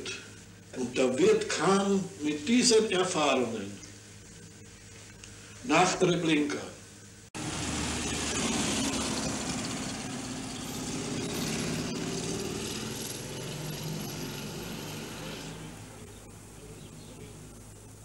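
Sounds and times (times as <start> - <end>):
street noise: 7.4 - 18.0
vehicle engine running: 7.4 - 18.0.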